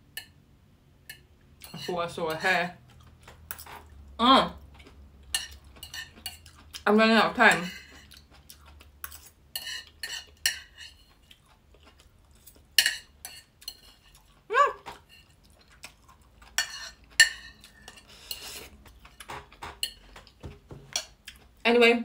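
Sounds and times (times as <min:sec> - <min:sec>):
fork scraping on a plate: 0:01.6 - 0:02.5, 0:05.4 - 0:06.5, 0:07.5 - 0:08.2, 0:09.0 - 0:11.2, 0:12.4 - 0:14.3, 0:15.0 - 0:15.4, 0:16.6 - 0:20.0.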